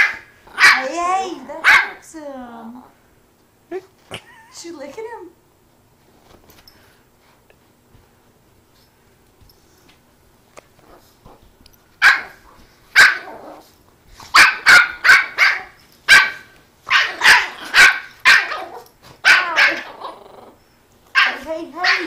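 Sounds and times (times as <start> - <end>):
dogs barking: 0.0 - 1.0, 1.6 - 2.0, 12.0 - 12.4, 13.0 - 13.4, 14.3 - 20.0, 21.2 - 22.0.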